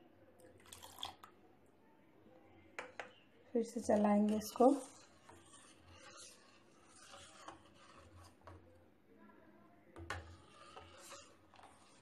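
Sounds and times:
ladle stirring in steel pan: 2.8 - 8.8, 10.0 - 12.0.

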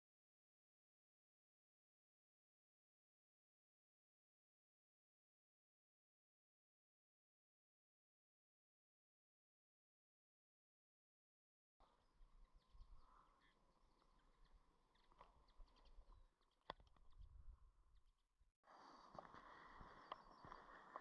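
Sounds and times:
faint ticks: 11.8 - 18.1
outdoor ambience: 11.8 - 21.0.

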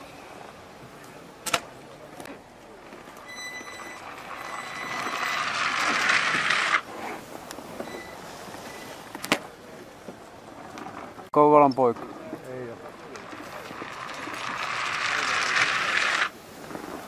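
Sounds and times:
skis hissing down track: 12.6 - 17.0.

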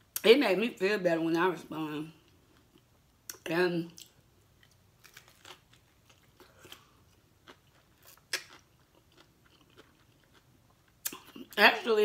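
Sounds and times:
chewing crunchy food: 4.0 - 11.6.

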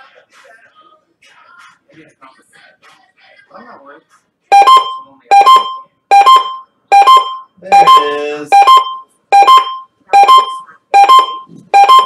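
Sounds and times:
two-note electronic alert beep: 4.5 - 12.0.

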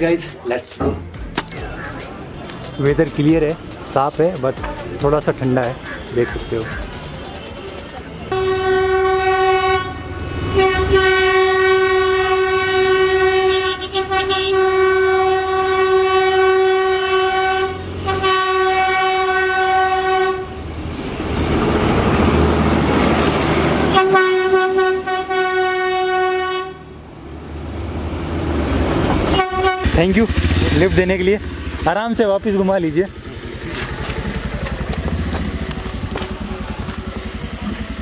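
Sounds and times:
steady horn-like tone: 8.3 - 20.6, 23.9 - 27.0, 29.3 - 30.2
rushing noise: 33.1 - 38.0.

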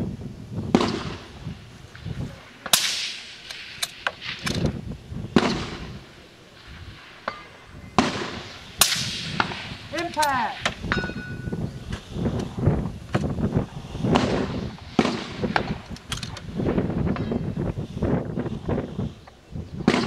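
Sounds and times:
rifle shots echoing: 0.7 - 11.1, 14.1 - 17.3
rifle action clicks: 2.6 - 4.8, 15.6 - 16.5.

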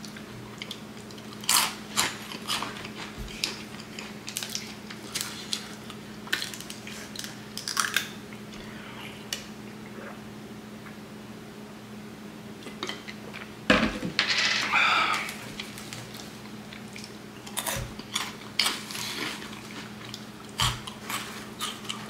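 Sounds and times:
steady low hum: 0.0 - 22.0
crunchy snack chewing: 0.6 - 8.2, 15.1 - 22.0.

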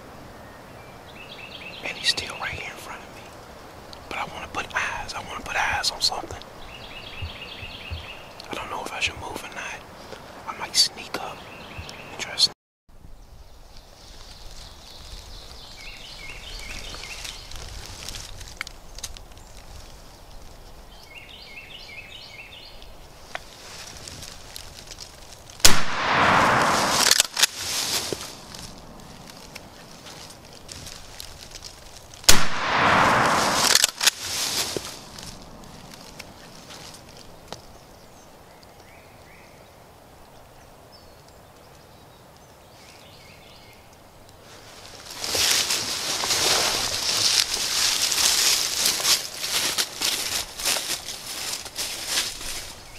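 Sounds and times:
faint songbird phrase: 1.1 - 3.3, 4.1 - 9.8, 10.5 - 12.5
shotgun blast: 25.6 - 27.5, 32.3 - 34.1
loud rolling echo: 25.7 - 27.5, 32.3 - 34.1.

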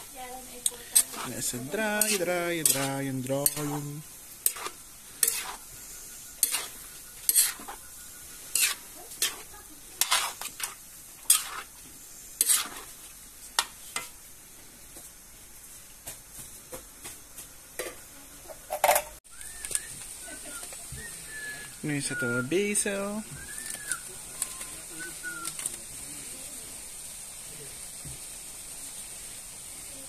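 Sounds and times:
faint sizzle: 0.0 - 30.0
metal spoon scraping a wok: 0.6 - 14.2.

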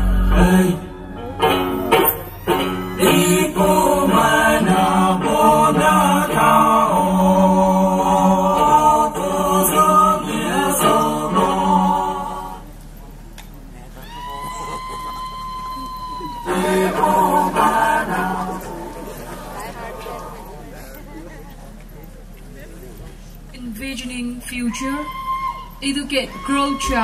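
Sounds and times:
instrumental backing music: 0.0 - 6.6.

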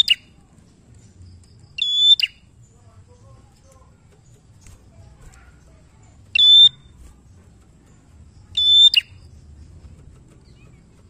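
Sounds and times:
bird giving piercing calls: 0.0 - 0.3, 1.8 - 2.5, 6.3 - 7.0, 8.5 - 9.3.

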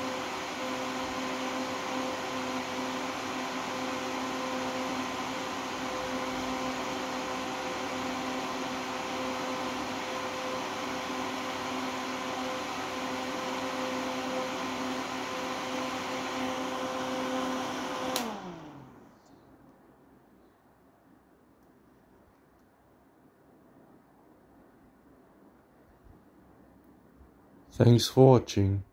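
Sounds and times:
power switch click: 18.1 - 18.4.

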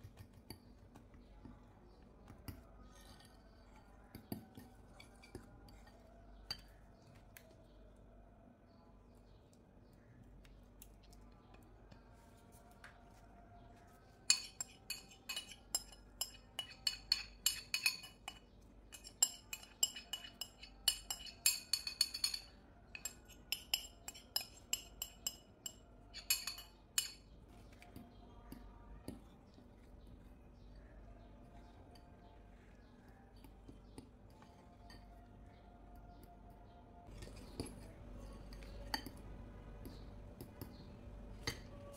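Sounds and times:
metal spoon scraping glass bowl: 2.8 - 6.8, 14.3 - 27.3, 37.1 - 39.2.

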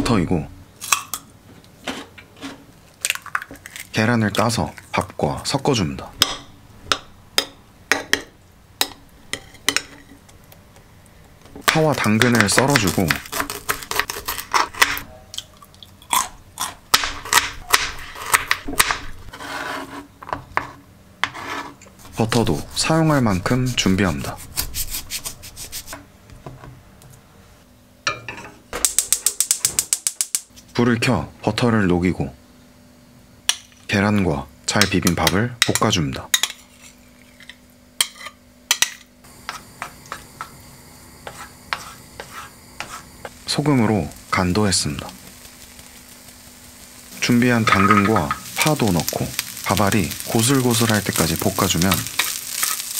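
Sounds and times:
soft sizzle: 0.0 - 52.9
wooden spatula scraping rice in a pan: 19.3 - 22.9, 41.2 - 43.4.

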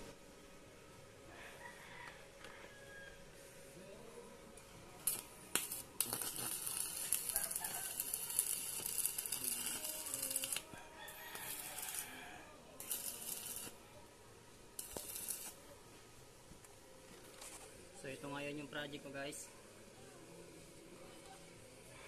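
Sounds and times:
arc welding crackling: 4.6 - 13.9, 14.7 - 15.8.

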